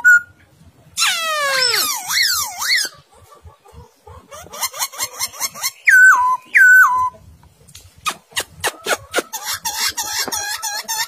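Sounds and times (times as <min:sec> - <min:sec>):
bird whistles: 0:05.6 - 0:07.2.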